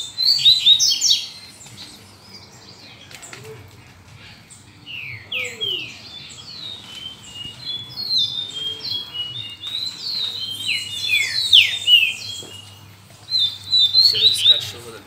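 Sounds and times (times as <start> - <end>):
finches chirping: 4.5 - 14.9.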